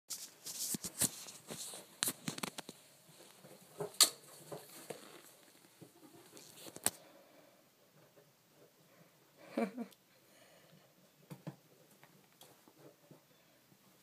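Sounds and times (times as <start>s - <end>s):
rat claws scratching on fabric: 0.1s - 2.7s.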